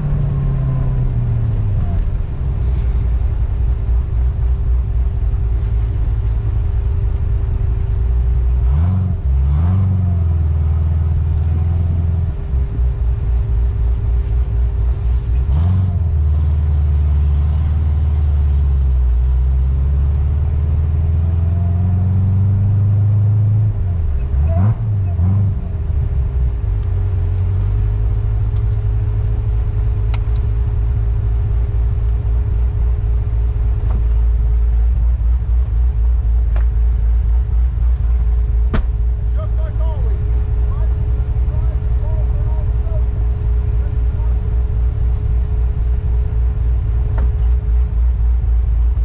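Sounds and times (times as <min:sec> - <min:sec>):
steady hum: 0:00.0 - 0:08.6, 0:25.6 - 0:49.0
car engine rumbling: 0:00.0 - 0:49.0.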